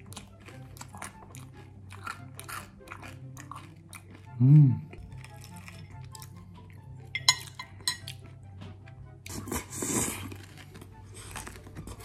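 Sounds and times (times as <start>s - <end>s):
knife and fork clinking on plate: 7.2s - 8.2s.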